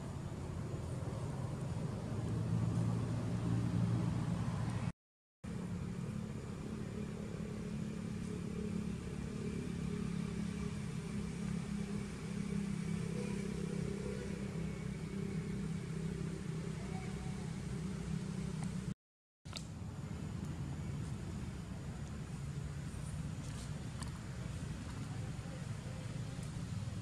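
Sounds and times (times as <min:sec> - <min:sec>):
low engine drone: 0:05.5 - 0:19.0.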